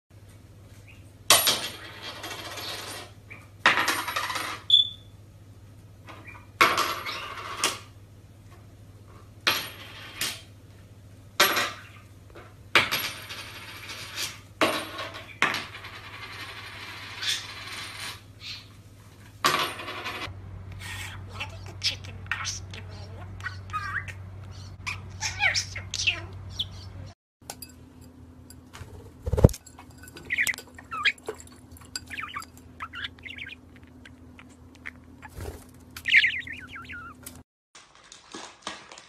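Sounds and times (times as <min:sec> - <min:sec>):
budgie chirp: 0:30.1 - 0:37.4.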